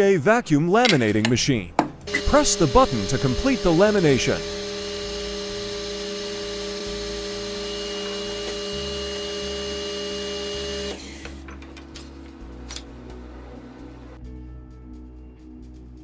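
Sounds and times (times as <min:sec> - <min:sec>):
vacuum pump humming: 0:02.1 - 0:11.4.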